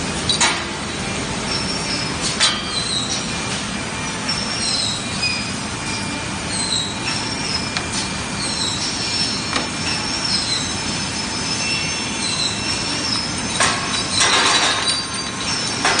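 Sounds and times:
conveyor belt squeaks: 0:00.0 - 0:16.0
machine running: 0:00.0 - 0:16.0
metal parts clattering: 0:13.2 - 0:16.0.

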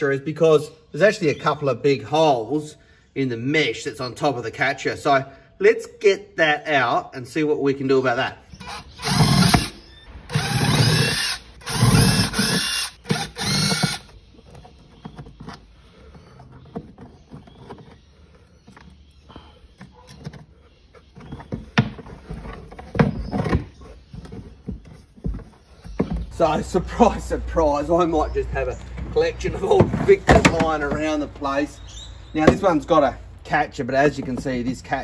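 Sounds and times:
impact driver whining: 0:08.5 - 0:15.1.

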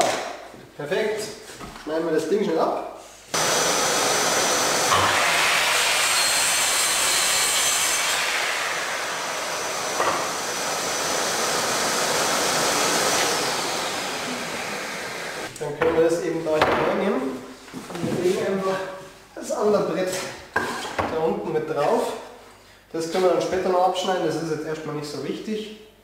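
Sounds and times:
dust extractor running: 0:03.4 - 0:15.5
mitre saw cutting wood: 0:03.4 - 0:15.5.

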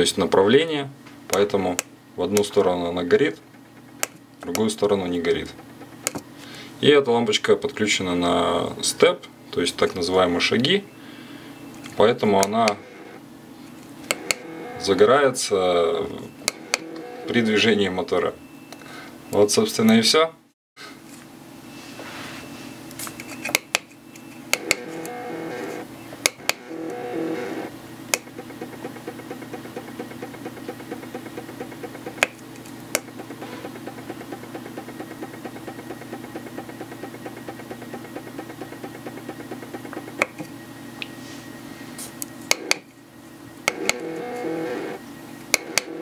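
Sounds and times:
stepper motor whine and ticking: 0:11.7 - 0:13.2, 0:14.1 - 0:15.2, 0:15.8 - 0:17.4, 0:24.1 - 0:41.1, 0:42.2 - 0:42.9, 0:43.6 - 0:46.0.

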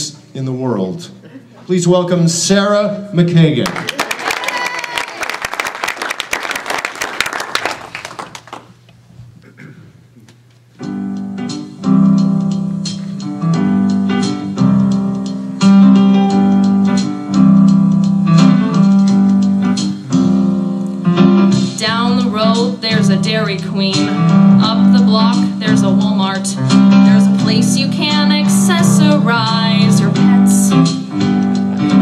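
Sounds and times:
applause: 0:03.6 - 0:08.8
piano accompaniment: 0:10.8 - 0:32.0.

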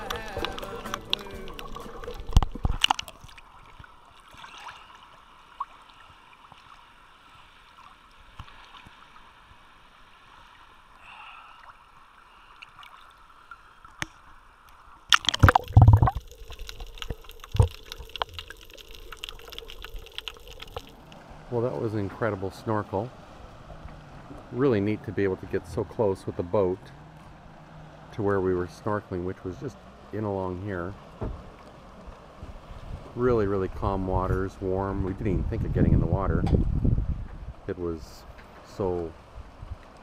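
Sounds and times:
loud water splashing: 0:00.0 - 0:05.0, 0:15.1 - 0:25.6
water sloshing and gurgling: 0:00.0 - 0:40.0.

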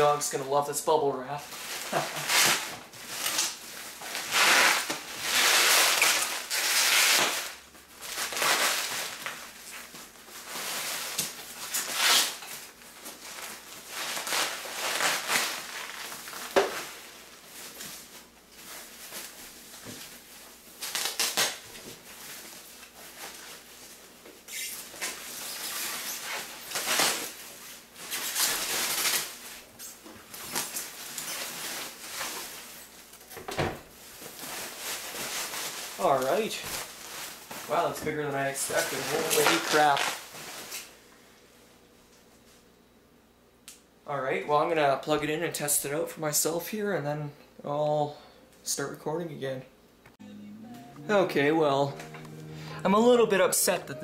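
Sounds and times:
bubble wrap crinkling: 0:01.4 - 0:33.3, 0:34.0 - 0:40.9.

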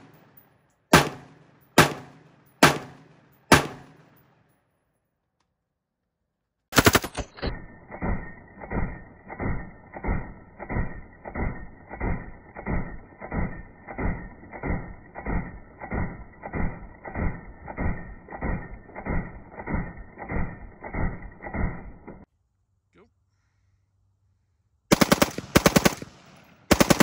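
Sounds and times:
slowed rifle shots thumping: 0:00.0 - 0:04.6, 0:06.7 - 0:22.3.

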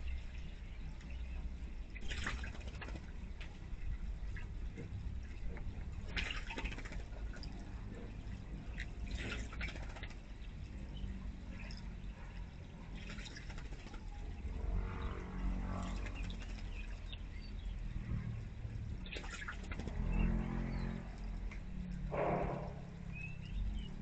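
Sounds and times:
water trickling into basin: 0:00.0 - 0:22.0
bird splashing: 0:01.8 - 0:04.6, 0:05.2 - 0:10.8, 0:12.6 - 0:21.4.

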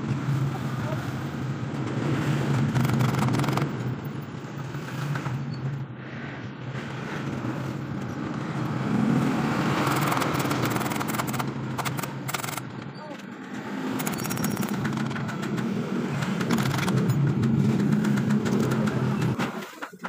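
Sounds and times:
hand tool clicking and scraping metal: 0:09.8 - 0:20.0.

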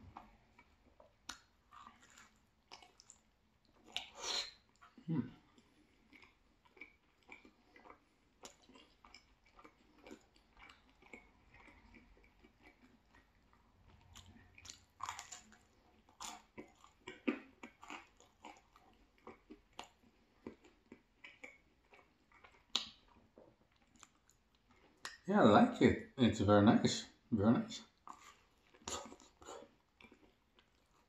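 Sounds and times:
pizza crust crunching: 0:05.6 - 0:25.0
mouth clicks while chewing: 0:16.2 - 0:25.2.

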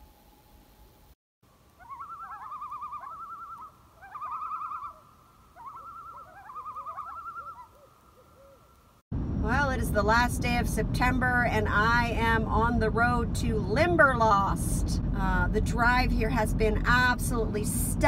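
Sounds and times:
birds calling: 0:01.7 - 0:08.9.

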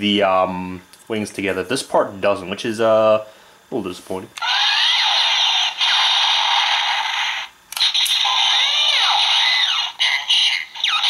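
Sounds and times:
electronic zaps: 0:04.4 - 0:11.0
toy gun charging buzz: 0:04.4 - 0:11.0.

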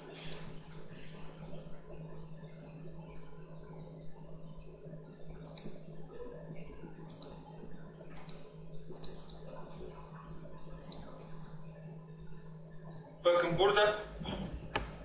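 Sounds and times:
low electrical hum: 0:00.0 - 0:15.0
computer mouse clicking: 0:00.2 - 0:00.6, 0:05.4 - 0:05.7, 0:07.0 - 0:07.4, 0:08.1 - 0:09.5, 0:10.8 - 0:11.2.

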